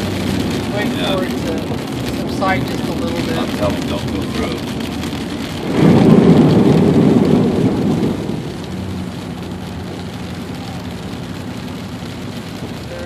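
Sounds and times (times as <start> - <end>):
tyres hissing on wet road: 0.0 - 13.0
tyres splashing through floodwater: 0.0 - 13.0.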